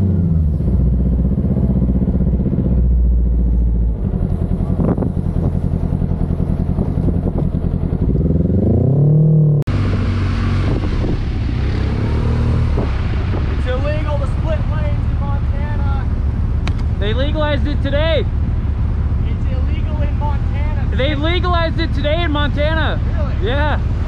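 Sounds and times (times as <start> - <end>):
motorcycle engine revving: 0.0 - 24.0
motorcycle riding: 0.0 - 24.0
wind on microphone: 4.4 - 8.7, 9.7 - 14.2.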